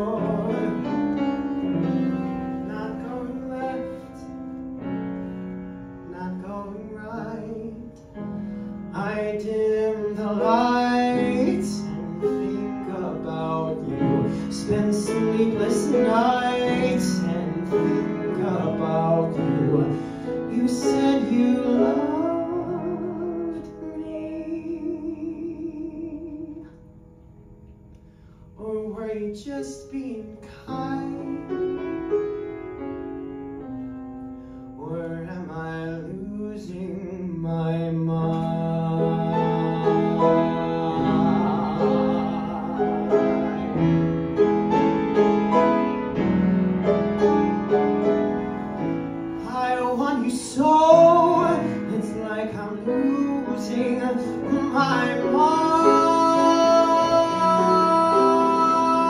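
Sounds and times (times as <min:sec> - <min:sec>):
man singing into microphone: 0:00.0 - 0:01.2, 0:02.6 - 0:04.4, 0:06.0 - 0:08.2, 0:08.9 - 0:26.7, 0:28.6 - 0:31.6, 0:34.8 - 0:43.7, 0:49.4 - 0:59.0
piano accompaniment: 0:00.0 - 0:59.0.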